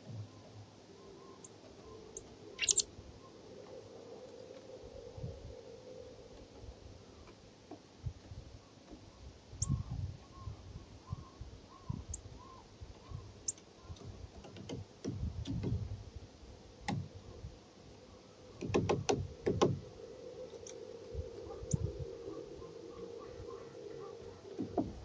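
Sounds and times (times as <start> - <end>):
faint steady hum: 0.0 - 25.0
bird high chirps: 1.0 - 3.4, 9.6 - 13.7, 20.4 - 24.7
wind rumbling on microphone: 2.2 - 7.3, 7.9 - 25.0.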